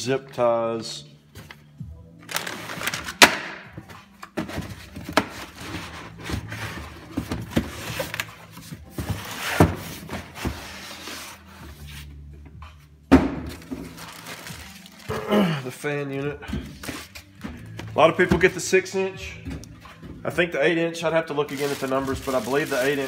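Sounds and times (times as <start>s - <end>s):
packing rustling and scraping: 2.2s - 3.2s, 3.8s - 12.2s, 13.5s - 15.2s, 21.4s - 23.0s
plastic bag crinkling: 13.6s - 15.6s, 21.4s - 23.0s.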